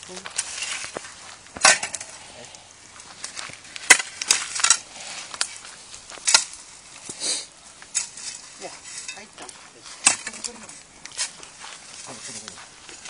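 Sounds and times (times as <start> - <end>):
shovel scraping ash: 0.0 - 13.0.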